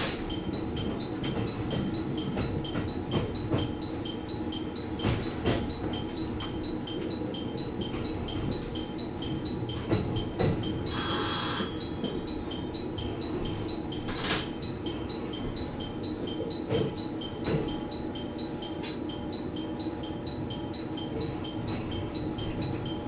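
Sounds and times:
train rumble: 0.0s - 23.0s
electronic bell dinging: 6.1s - 23.0s.

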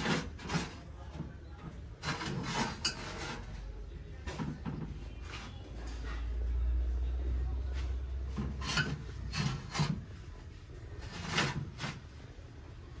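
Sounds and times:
hand scraping over brass: 0.0s - 1.2s, 1.8s - 3.7s, 8.3s - 10.2s, 10.9s - 12.2s.

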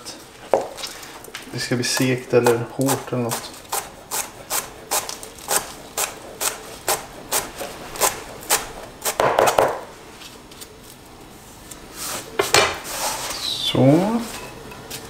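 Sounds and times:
herbs scraping on board: 1.9s - 9.9s
knife chopping on cutting board: 2.0s - 9.9s.

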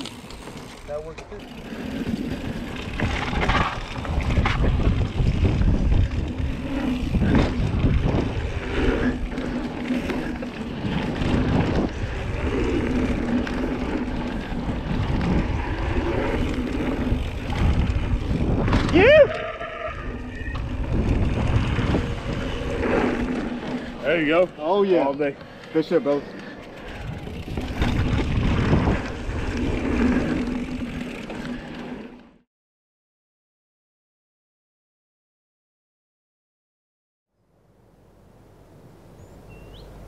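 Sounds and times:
bike tyres rumbling on dirt: 0.0s - 32.4s
wind on microphone: 2.2s - 23.9s, 26.8s - 31.2s.

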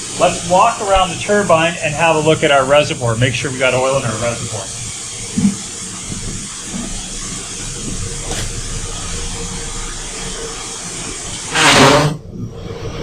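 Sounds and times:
faint hum: 0.0s - 13.0s
steam hissing: 0.0s - 13.0s
loud rushing burst: 8.0s - 12.8s.

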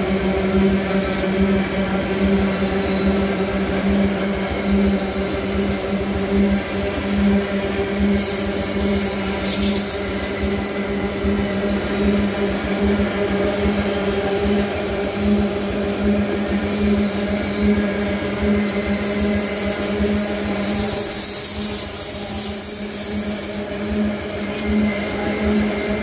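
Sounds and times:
high hiss: 18.6s - 24.3s.

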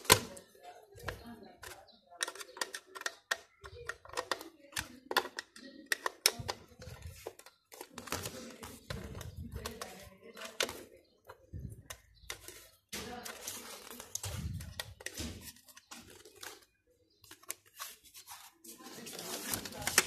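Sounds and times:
screwdriver clicking and scraping: 1.0s - 7.5s.

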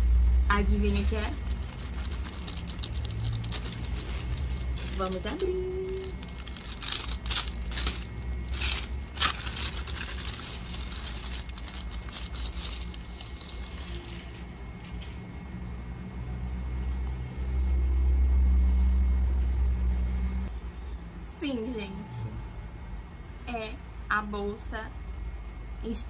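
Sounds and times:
plastic bag crinkling and tearing: 0.9s - 15.0s
fabric bag rustling: 1.0s - 15.1s.

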